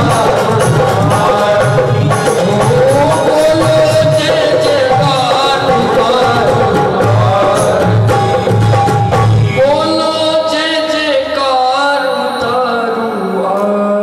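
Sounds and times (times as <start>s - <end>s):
low drum beat: 0.0s - 9.9s
harmonium chords: 0.0s - 13.5s
man singing: 0.0s - 14.0s.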